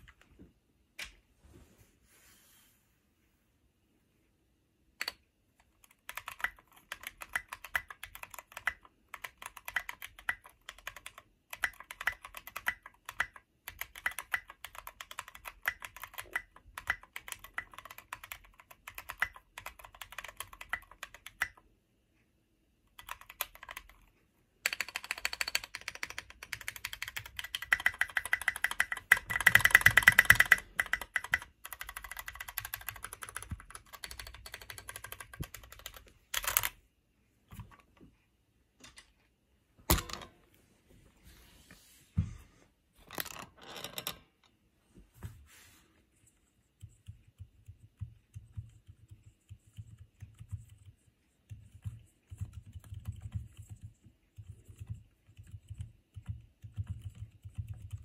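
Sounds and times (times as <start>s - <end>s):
mechanical keyboard typing: 5.0s - 21.6s, 22.9s - 36.8s, 46.8s - 58.0s.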